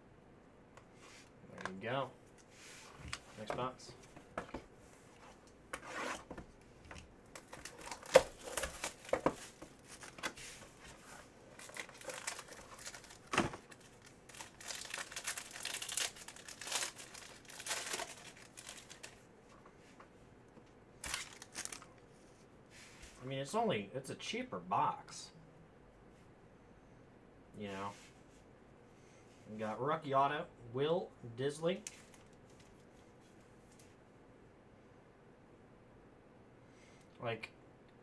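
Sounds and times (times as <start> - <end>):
foil wrapper crinkling: 7.4 - 10.2, 11.5 - 19.2, 21.0 - 21.9.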